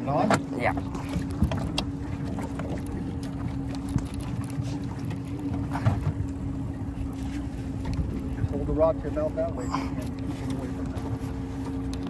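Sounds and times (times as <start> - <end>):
boat engine rumbling: 0.0 - 12.0.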